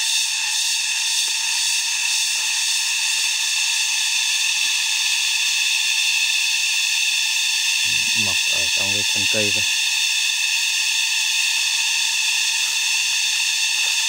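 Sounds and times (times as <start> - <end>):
cicadas buzzing: 0.0 - 14.0.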